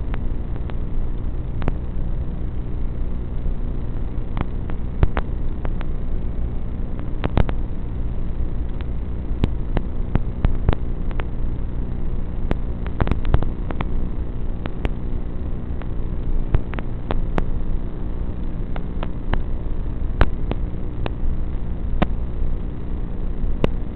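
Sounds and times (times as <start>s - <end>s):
static buzz and hiss: 0.0s - 23.9s
static crackles and clicks: 0.0s - 23.9s.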